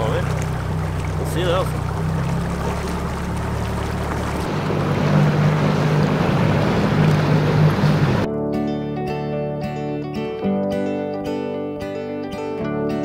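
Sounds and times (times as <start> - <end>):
motorboat engine running: 0.0 - 8.3
rushing water: 0.0 - 8.3.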